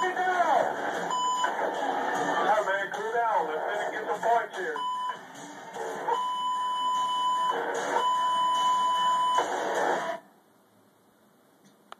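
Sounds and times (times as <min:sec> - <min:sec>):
censor bleeps: 0:01.1 - 0:01.5, 0:06.2 - 0:09.5
hissy radio audio: 0:02.5 - 0:04.8.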